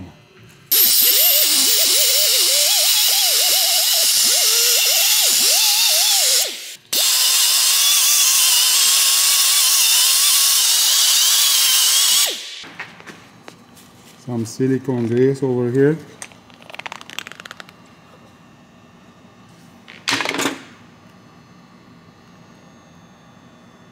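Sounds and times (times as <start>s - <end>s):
pneumatic die grinder whining: 0.7s - 12.6s.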